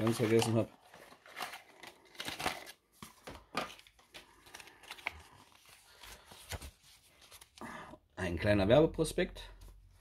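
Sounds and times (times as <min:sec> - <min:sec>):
paper rustling and crinkling: 0:00.0 - 0:07.6.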